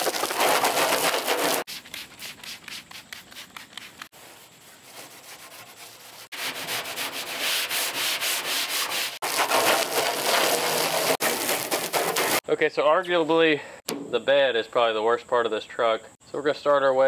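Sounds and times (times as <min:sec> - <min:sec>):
hose spraying water: 0:00.0 - 0:04.2, 0:08.8 - 0:12.4
scrub pad rasping on metal door: 0:00.2 - 0:12.4.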